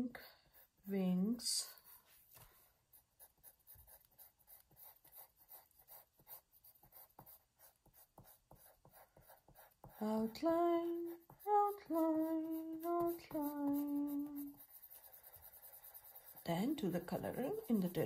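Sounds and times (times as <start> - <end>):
pencil scratching on paper: 0.2 - 18.0
woman humming: 10.1 - 14.5.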